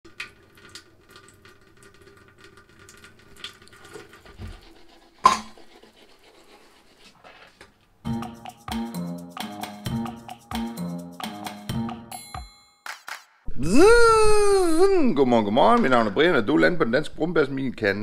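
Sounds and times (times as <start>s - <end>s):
toothbrush scrubbing teeth: 3.7s - 7.5s
music: 8.0s - 13.5s.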